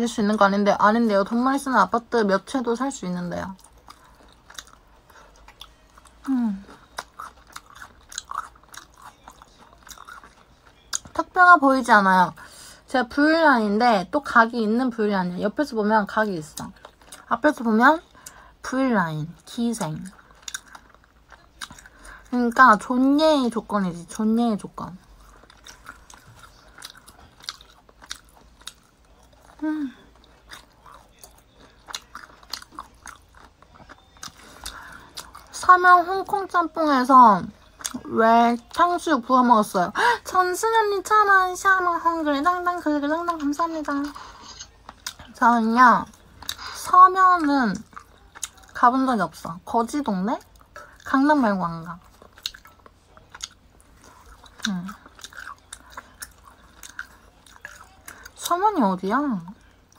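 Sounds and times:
person chewing meat: 3.5 - 11.2, 20.0 - 22.3, 25.0 - 35.5, 37.6 - 38.1, 43.3 - 45.4, 46.1 - 46.8, 47.8 - 48.8, 52.0 - 58.4.

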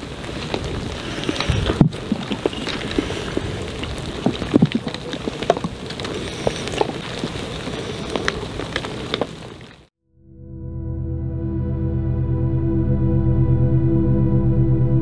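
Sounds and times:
steady rain falling: 0.0 - 9.9.

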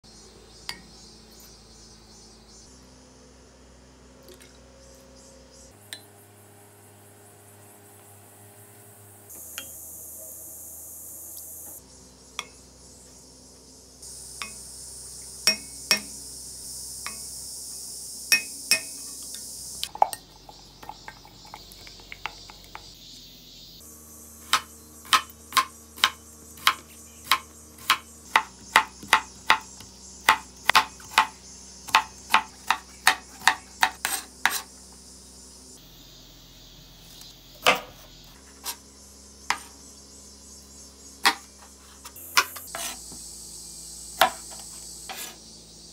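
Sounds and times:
knife chopping on cutting board: 24.5 - 29.7, 30.3 - 34.7, 41.2 - 41.5, 44.2 - 45.4.

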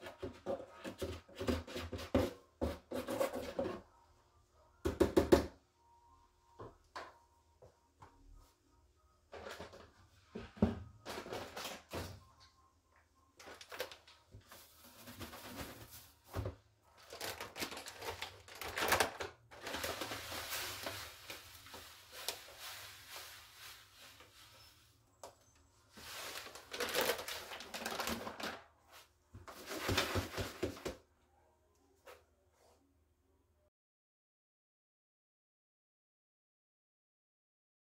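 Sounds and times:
cat litter pouring into plastic box: 17.0 - 24.5, 25.9 - 28.6.

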